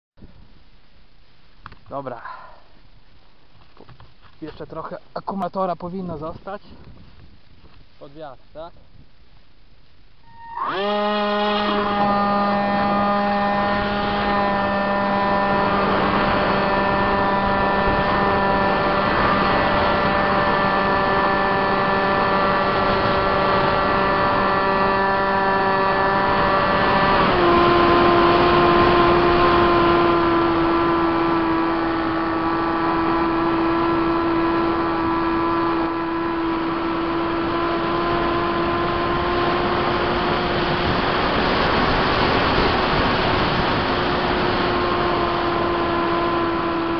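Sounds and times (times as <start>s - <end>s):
wind rushing over microphone: 5.8s - 8.0s, 10.2s - 46.9s
electric motor and propeller whining: 10.2s - 46.9s.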